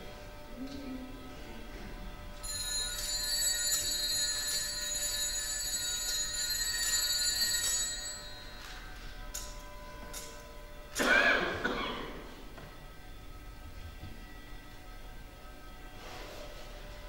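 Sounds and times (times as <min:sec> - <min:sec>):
bright ringing bells: 0:02.3 - 0:10.7.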